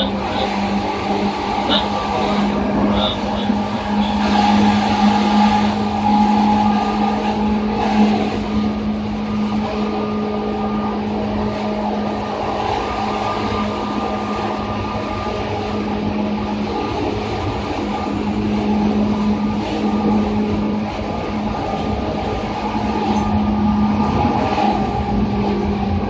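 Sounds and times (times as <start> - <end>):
electric train traction hum: 0.0 - 26.0
wheels rumbling on rail: 0.0 - 26.0.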